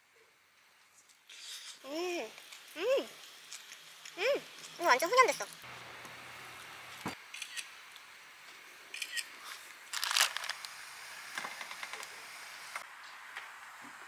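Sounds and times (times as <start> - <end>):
aluminium foil crinkling: 0.9 - 5.6, 9.4 - 12.1.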